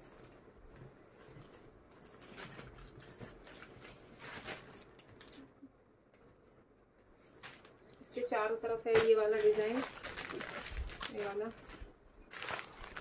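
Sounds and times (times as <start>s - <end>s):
bedsheet fabric rustling: 8.8s - 13.0s.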